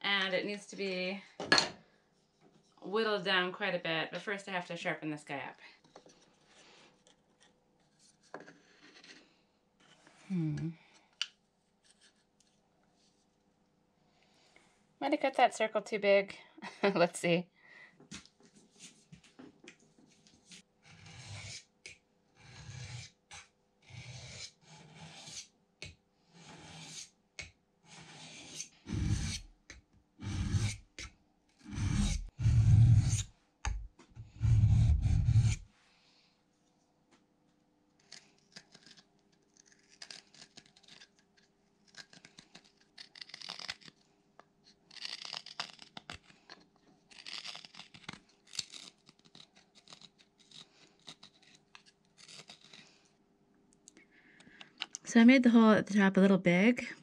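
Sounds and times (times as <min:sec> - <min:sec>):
gouge rasping on sharpening plate: 0:22.4 - 0:25.5, 0:26.4 - 0:27.1, 0:27.9 - 0:29.5, 0:30.2 - 0:30.8, 0:31.7 - 0:35.6
gouge paring wood: 0:22.4 - 0:29.5, 0:30.2 - 0:35.7.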